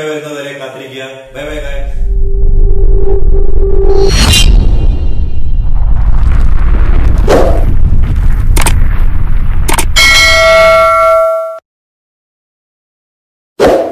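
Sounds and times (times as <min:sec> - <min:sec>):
loud low rumble: 0:01.4 - 0:10.4
whoosh: 0:01.4 - 0:10.4
sharp clicks: 0:08.6 - 0:08.8, 0:09.6 - 0:10.0
bell-like ding: 0:10.0 - 0:11.6.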